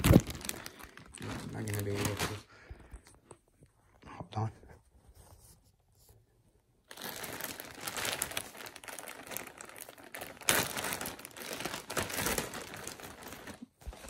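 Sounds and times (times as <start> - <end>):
plastic bag crinkling: 0.0 - 2.6, 6.9 - 14.0.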